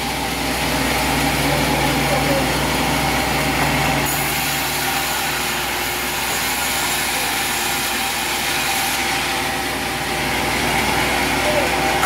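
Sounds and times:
band saw cutting timber: 0.4s - 12.0s.

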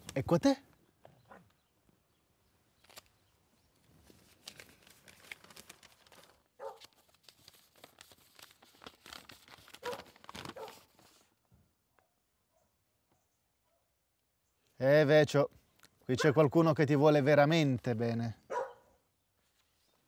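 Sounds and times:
paper crinkling and rustling: 2.8s - 11.4s, 19.4s - 20.0s.

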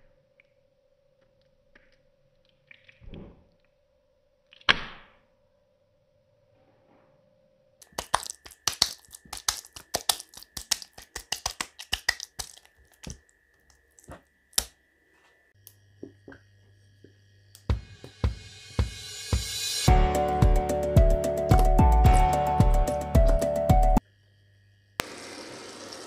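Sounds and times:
sharp clicks and pops: 7.8s - 14.8s
music: 17.6s - 24.0s.

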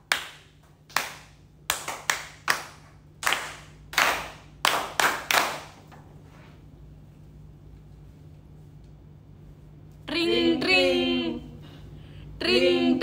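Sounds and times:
hand claps echoing: 0.0s - 5.9s.

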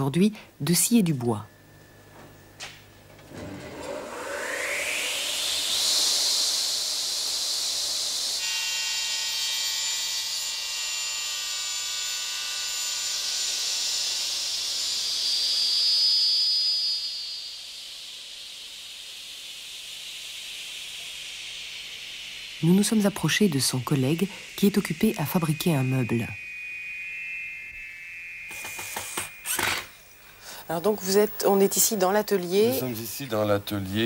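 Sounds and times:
table saw cutting wood: 3.3s - 30.2s.

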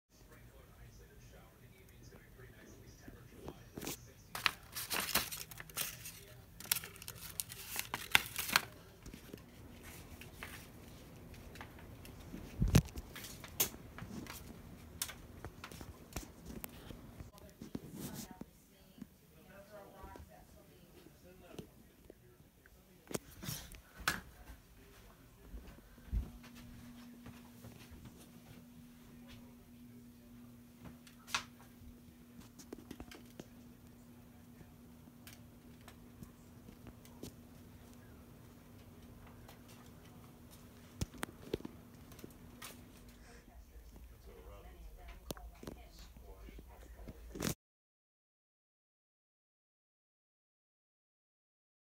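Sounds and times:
ceiling fan hum: 0.1s - 47.3s
paper crinkling and rustling: 3.1s - 18.4s, 32.3s - 33.7s, 38.8s - 43.2s.

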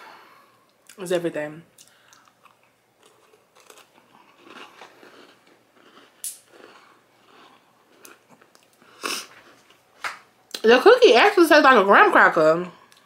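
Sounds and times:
chewing crunchy cookie: 1.8s - 9.8s
crisp crunch: 2.1s - 8.8s.

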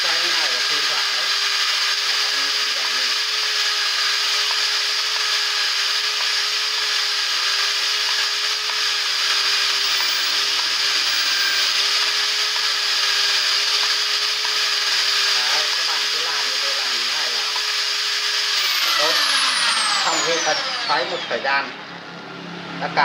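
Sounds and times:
electric drill whining: 0.0s - 22.9s.

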